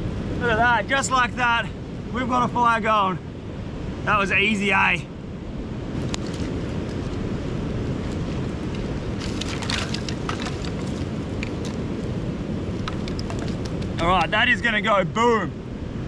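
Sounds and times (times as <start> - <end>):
wind and surf: 0.0 - 16.0
wind buffeting microphone: 0.0 - 16.0
fire crackling: 5.3 - 14.9
sticks clattering: 8.8 - 11.8, 12.8 - 14.3.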